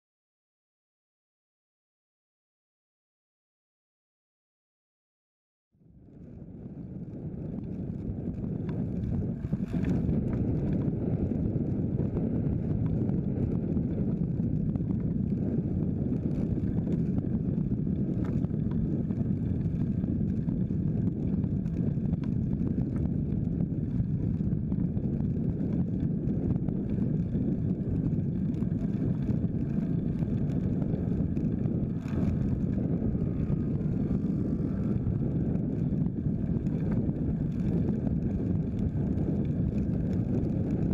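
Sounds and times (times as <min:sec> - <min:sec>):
wind rumble on microphone: 0:05.8 - 0:40.9.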